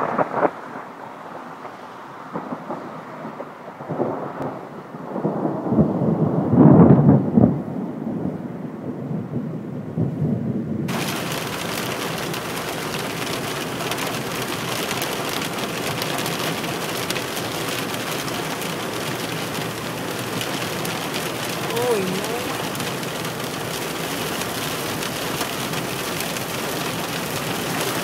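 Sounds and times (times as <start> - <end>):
thunder rumble: 0.0 - 28.0
hail pelting a car windshield: 10.9 - 28.0.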